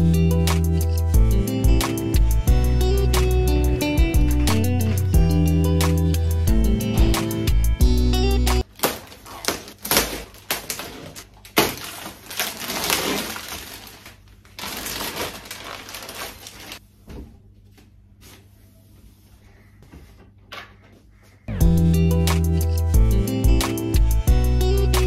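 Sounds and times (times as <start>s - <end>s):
plastic packaging crinkling: 8.6s - 16.8s.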